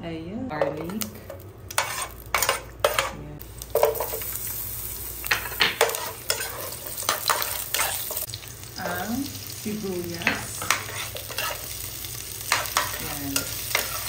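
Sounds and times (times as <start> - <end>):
metal spoon scraping a pan: 0.6 - 3.2, 5.3 - 8.3, 10.3 - 11.8, 12.5 - 14.0
garlic sizzling in oil: 1.0 - 14.0.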